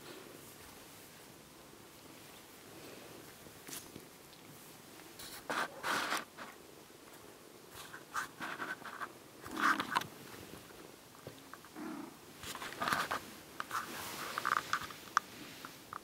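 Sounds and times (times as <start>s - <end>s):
kittens scratching on fabric: 5.2s - 6.6s, 7.7s - 11.8s, 12.4s - 15.9s.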